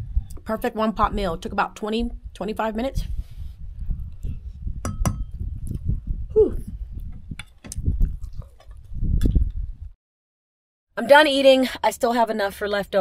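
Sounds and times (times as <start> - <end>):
person humming approval: 6.3 - 6.6.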